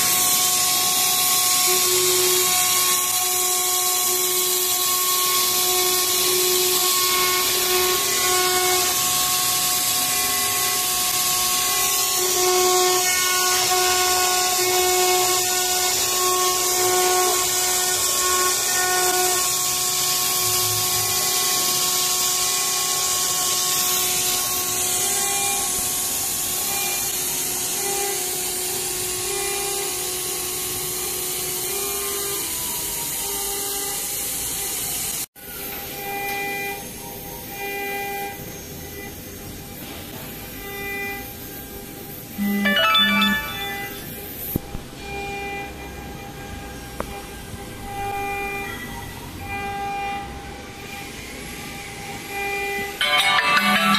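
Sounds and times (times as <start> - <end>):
router spindle whine: 0.0 - 53.7.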